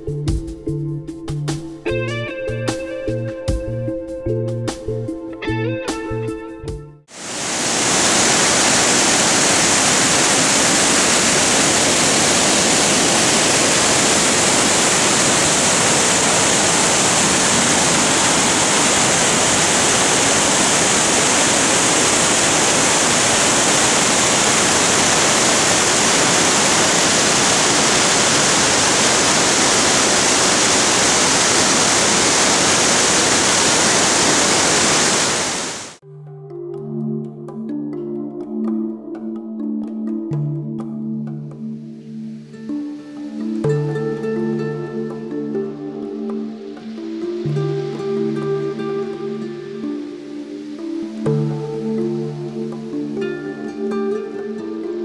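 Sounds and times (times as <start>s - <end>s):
waterfall rushing: 7.1s - 36.0s.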